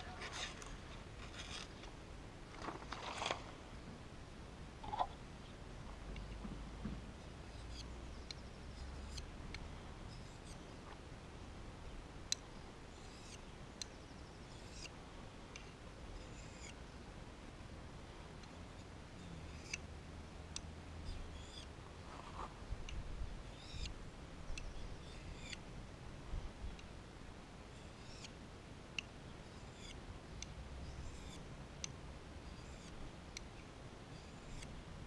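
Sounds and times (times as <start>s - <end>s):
knife scraping on sharpening stone: 13.0s - 13.4s.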